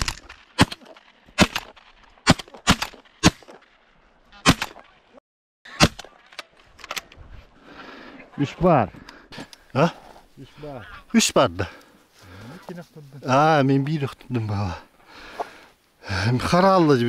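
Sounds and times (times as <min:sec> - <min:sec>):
shotgun shots: 0:00.0 - 0:03.6, 0:04.4 - 0:04.9, 0:05.7 - 0:06.2.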